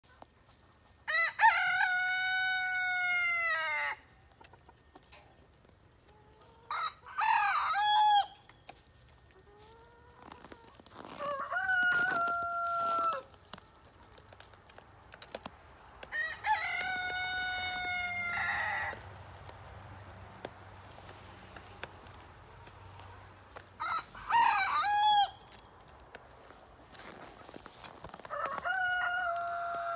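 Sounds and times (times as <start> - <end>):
chicken crowing: 1.1 - 4.0, 6.7 - 8.4, 9.6 - 13.4, 16.1 - 19.0, 23.8 - 25.5, 28.2 - 29.9.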